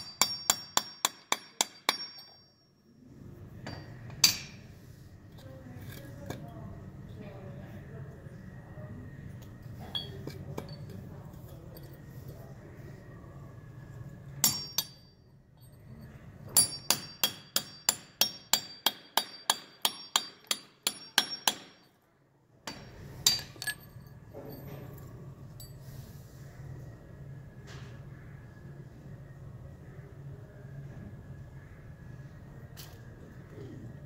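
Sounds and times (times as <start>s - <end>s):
hammer striking steel chisel: 0.0s - 2.6s, 3.6s - 4.8s, 14.4s - 15.8s, 16.5s - 21.9s, 22.7s - 24.6s
ringing metallic taps: 0.0s - 2.7s, 3.6s - 4.7s, 14.4s - 15.9s, 16.5s - 21.9s, 22.7s - 25.0s.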